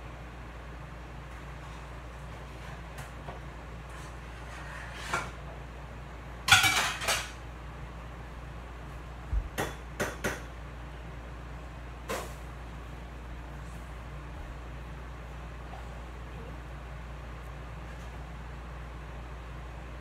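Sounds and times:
steady low hum: 0.0s - 20.0s
dishes and cutlery clattering: 6.5s - 7.4s.

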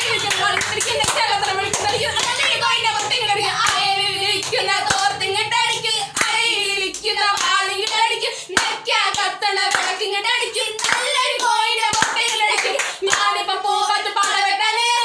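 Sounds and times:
hand claps: 0.0s - 3.8s, 7.0s - 8.0s, 8.6s - 10.0s, 10.8s - 13.3s
woman singing unaccompanied: 0.0s - 15.0s.

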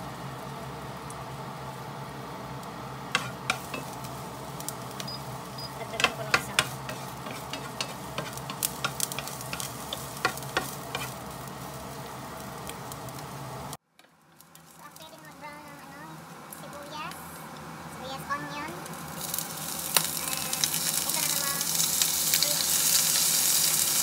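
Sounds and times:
onion and garlic sizzling in oil: 0.0s - 24.0s
spatula scraping a pan: 3.2s - 4.0s, 6.0s - 11.2s.

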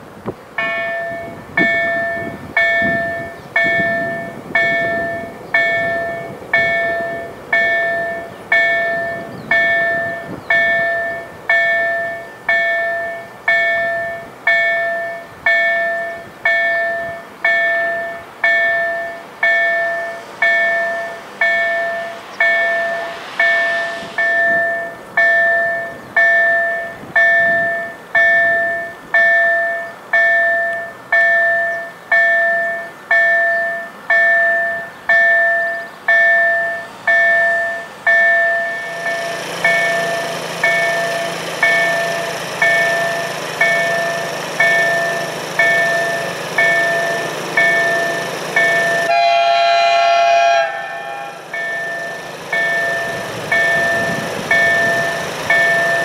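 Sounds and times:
level crossing warning bell: 0.6s - 56.0s.

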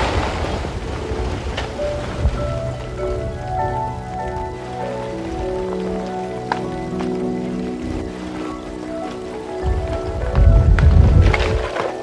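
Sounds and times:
sharp rock crack: 0.0s - 1.0s
faint background music: 0.0s - 12.0s
rock tumbling and grinding: 9.6s - 12.0s.

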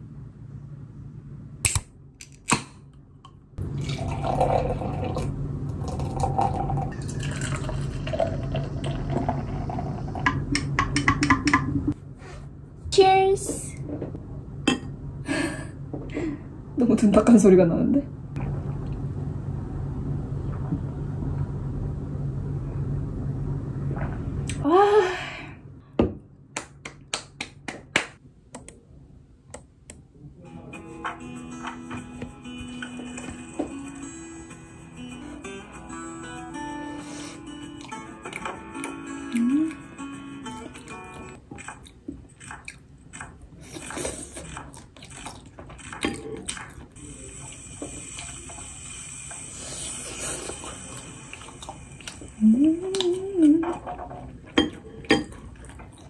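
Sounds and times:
steady low hum: 0.0s - 35.0s
drink pouring into a glass: 3.6s - 10.2s.

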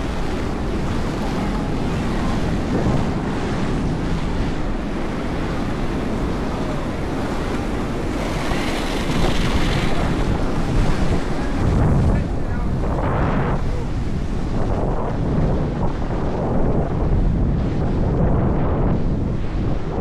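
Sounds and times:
wind buffeting microphone: 0.0s - 20.0s
skate wheels rolling on tarmac: 4.9s - 11.6s.

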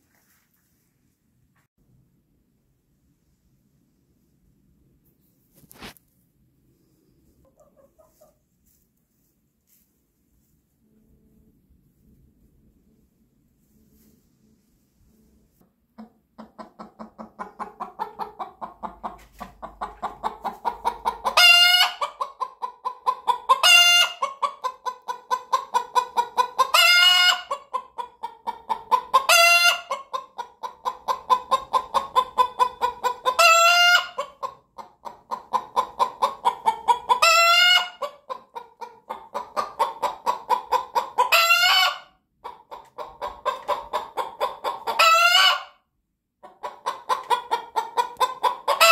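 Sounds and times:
hen clucking: 7.4s - 8.4s, 15.9s - 45.8s, 46.4s - 48.9s.

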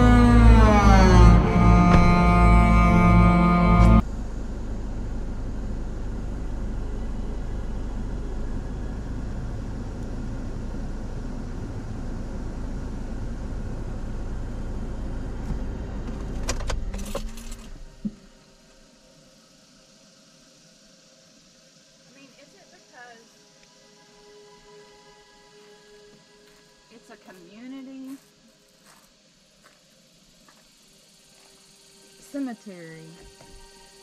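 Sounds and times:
car engine running: 0.0s - 18.6s.

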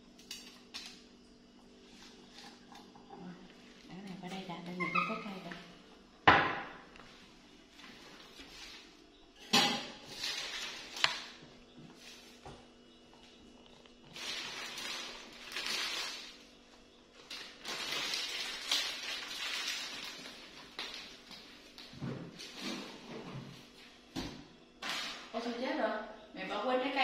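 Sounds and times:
leafy greens rustling: 7.7s - 9.0s, 10.0s - 11.4s, 14.0s - 23.0s.

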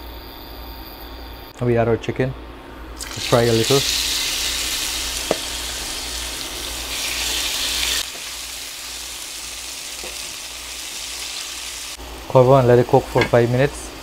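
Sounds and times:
chicken sizzling in hot oil: 3.0s - 12.0s.

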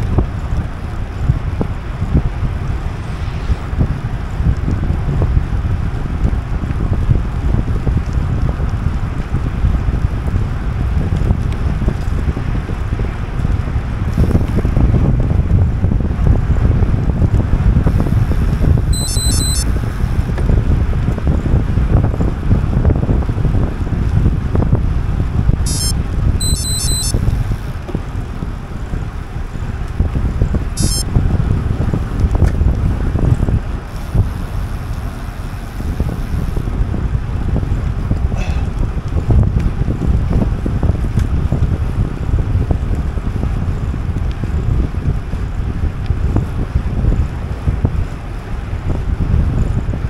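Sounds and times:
wind buffeting microphone: 0.0s - 19.0s, 19.6s - 26.4s, 27.1s - 50.0s
rapid high-pitched pulsing: 18.9s - 19.6s, 25.7s - 27.2s, 30.8s - 31.0s.

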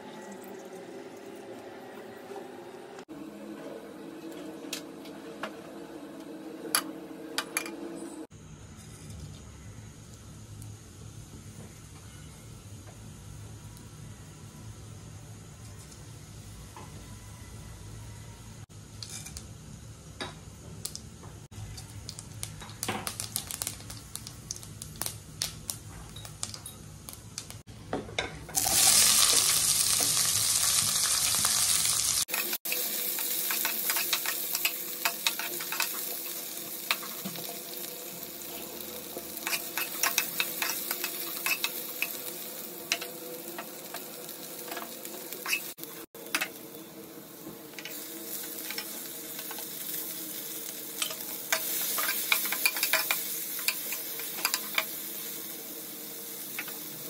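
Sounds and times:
seeds sizzling in hot oil: 8.5s - 16.8s, 18.7s - 27.7s, 28.6s - 57.0s
onions sizzling loudly: 18.7s - 27.7s, 28.6s - 57.0s
spoon scraping onions: 31.5s - 37.8s, 38.4s - 46.6s, 47.8s - 55.2s.

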